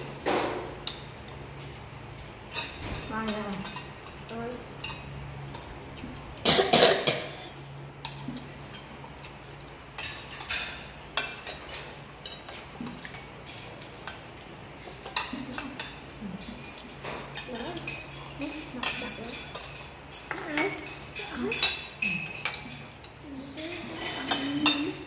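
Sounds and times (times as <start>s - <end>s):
spoons clinking on plates: 0.4s - 5.7s, 6.7s - 25.0s
person coughing: 6.4s - 7.5s.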